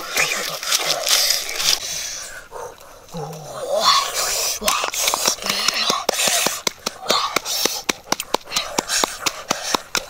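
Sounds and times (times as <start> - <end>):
noisy breaths: 0.0 - 10.0
person chewing and smacking: 4.7 - 10.0.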